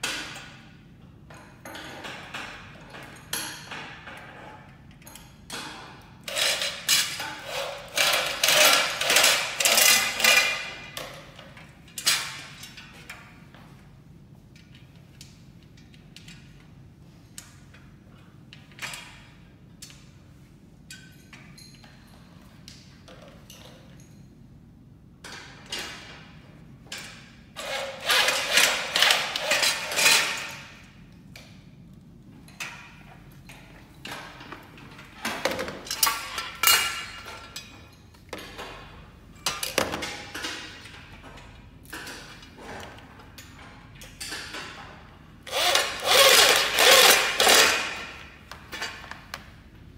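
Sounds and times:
metal frame parts clicking and scraping: 1.3s - 13.4s, 25.2s - 31.6s, 32.4s - 49.6s
metal rails clinking on tile floor: 6.3s - 11.3s, 35.9s - 38.6s, 45.5s - 49.1s.

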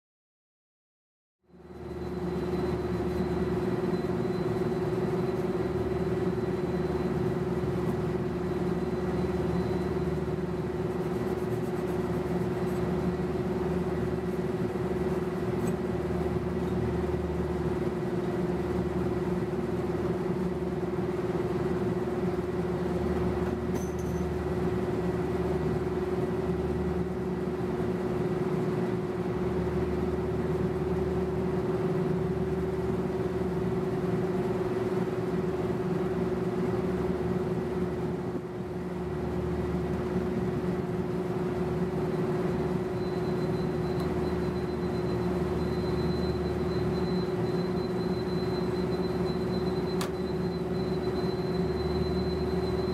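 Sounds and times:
condenser units humming: 1.6s - 52.9s.

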